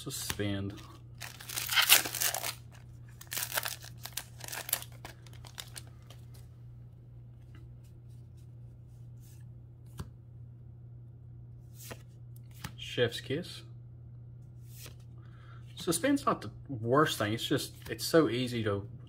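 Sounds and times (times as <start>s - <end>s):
cards being handled: 0.0s - 6.5s, 11.6s - 12.8s, 14.6s - 15.1s
steady low hum: 0.0s - 19.0s
plastic wrapper rustling: 0.8s - 6.4s.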